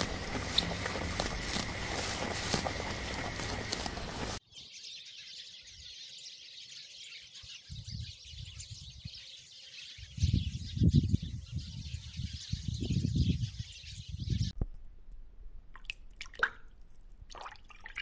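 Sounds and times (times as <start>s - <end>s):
loud noisy outdoor sound: 0.0s - 4.4s
wind buffeting microphone: 0.0s - 4.4s, 7.7s - 9.2s, 10.0s - 14.8s
birds chirping: 0.0s - 14.6s.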